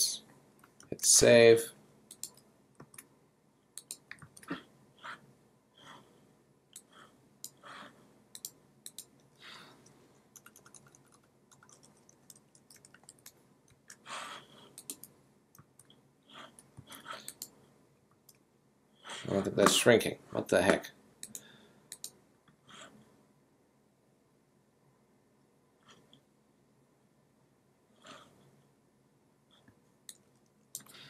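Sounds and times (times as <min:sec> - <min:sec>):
computer mouse clicks: 0:02.1 - 0:03.1, 0:03.7 - 0:04.6, 0:06.7 - 0:07.6, 0:08.3 - 0:14.0, 0:14.7 - 0:18.4, 0:21.2 - 0:22.2, 0:29.6 - 0:31.0
keyboard typing: 0:08.3 - 0:14.0, 0:14.7 - 0:17.6.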